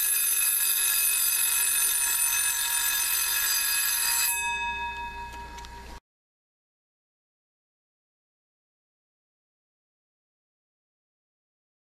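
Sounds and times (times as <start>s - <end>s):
alarm clock bell ringing: 0.0s - 6.0s.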